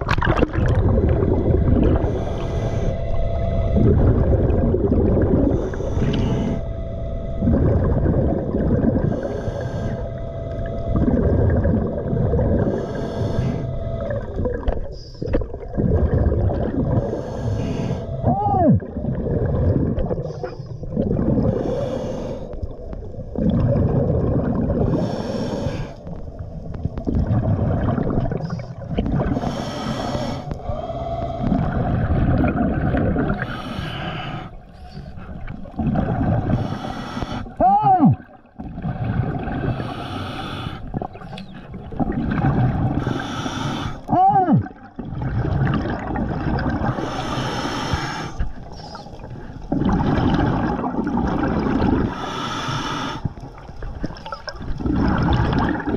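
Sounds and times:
constant low rumble: 0.0 - 52.2
bubbling regulator exhalations: 0.0 - 55.9
faint steady tone: 1.1 - 23.2
rising-and-falling whistle: 2.4 - 4.8, 5.9 - 11.6.

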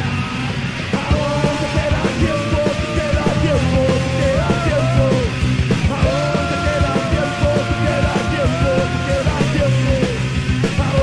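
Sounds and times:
distorted guitars: 0.0 - 11.0
pounding drums: 0.6 - 11.0
shouted vocals: 5.9 - 10.2.

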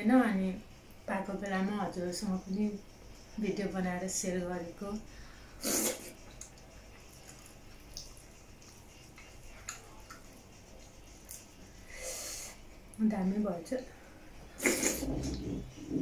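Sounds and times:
mouth chewing and smacking: 5.8 - 11.5.

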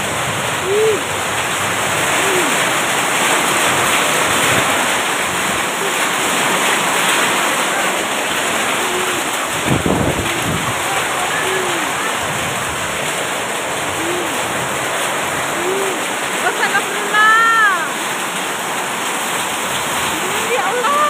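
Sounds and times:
hail and heavy rain: 0.0 - 21.0.

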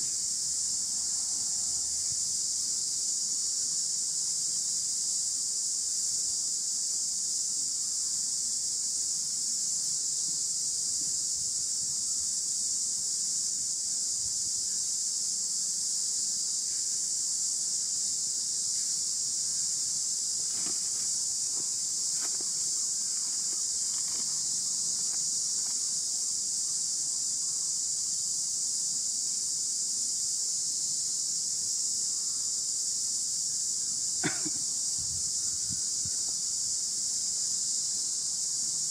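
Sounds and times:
high-pitched insect drone: 0.0 - 38.9
soft rustles: 20.4 - 26.0.

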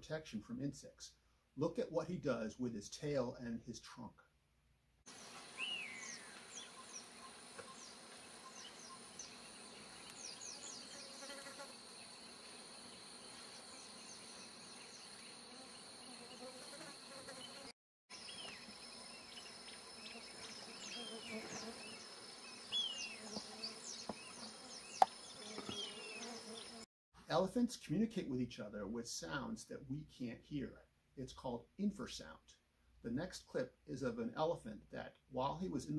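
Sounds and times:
insects buzzing drone: 5.1 - 26.8
high bird chirps: 5.5 - 11.2, 18.2 - 26.8.

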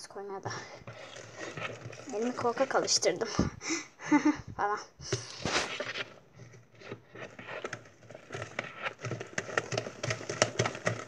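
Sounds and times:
wet clicks and crackles: 0.0 - 3.4
spoon stirring slime: 0.0 - 3.6, 5.0 - 11.0.

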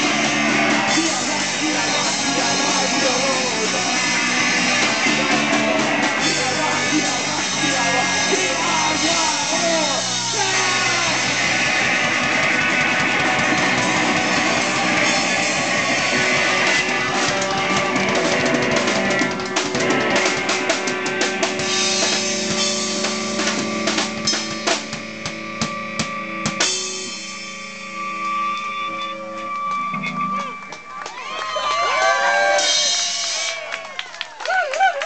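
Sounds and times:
drum and cymbal hits: 0.0 - 28.5, 32.4 - 33.7
live rock band playing: 0.0 - 31.0, 32.1 - 34.0
ringing guitar notes: 7.6 - 30.9.

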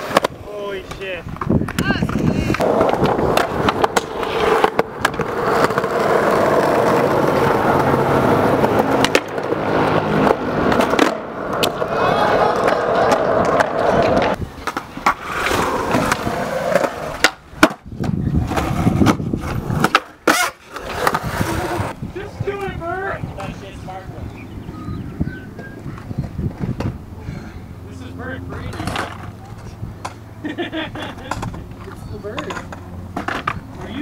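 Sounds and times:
skateboard tail popping clacks: 0.0 - 9.6, 12.5 - 21.3
skateboard trucks grinding: 0.0 - 34.0
skateboard wheels rolling on concrete: 0.0 - 34.0.

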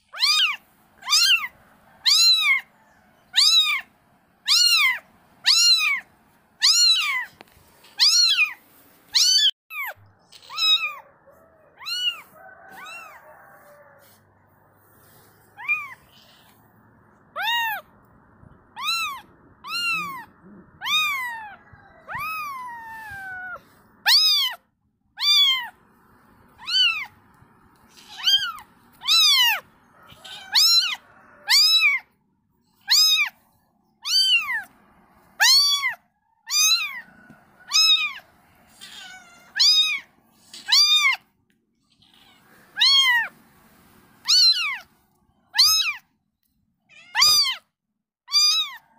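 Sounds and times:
kitten mewing: 9.2 - 11.0, 17.3 - 24.6, 25.2 - 25.8, 26.6 - 27.2, 27.8 - 32.0, 34.0 - 34.7, 35.4 - 37.0, 37.7 - 41.2, 44.2 - 44.9, 45.6 - 46.0, 47.0 - 47.6.

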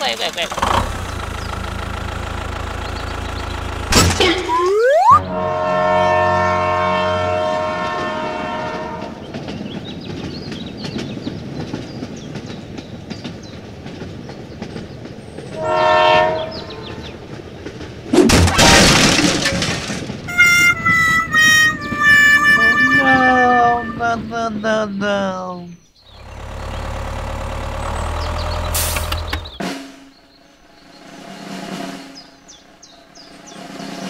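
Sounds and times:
wheels clicking on track: 0.0 - 4.4, 7.8 - 18.2, 19.1 - 23.4, 26.1 - 29.6
short electronic tones: 4.4 - 5.3
electronic train whistle toot: 4.5 - 9.1, 15.6 - 16.8, 20.3 - 24.0.

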